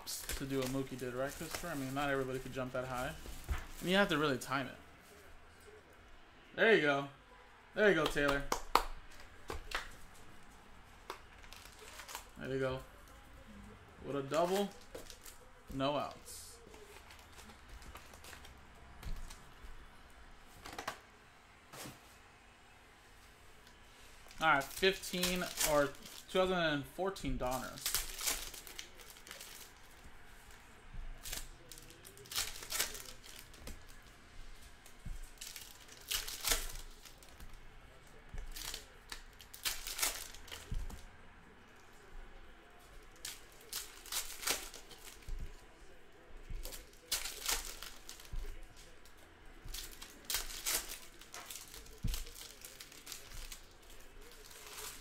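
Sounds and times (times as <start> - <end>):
card pack wrappers crinkling: 0.0 - 4.7, 11.0 - 13.2, 24.3 - 26.5, 27.4 - 41.1, 42.8 - 55.0.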